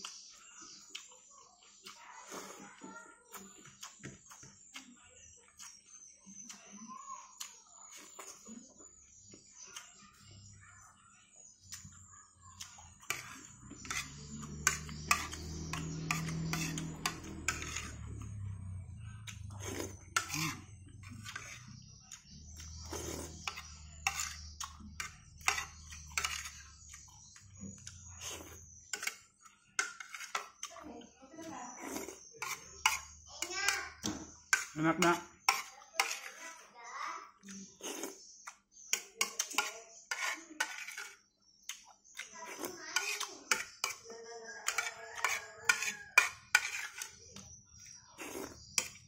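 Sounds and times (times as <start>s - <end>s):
metal spoon scraping a plate: 12.6s - 30.8s, 31.4s - 36.7s, 37.5s - 49.0s.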